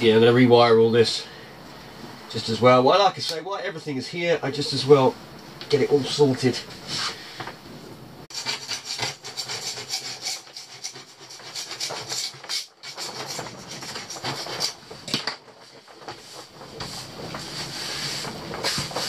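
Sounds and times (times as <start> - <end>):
wiring scraping and knocking: 8.3 - 19.0.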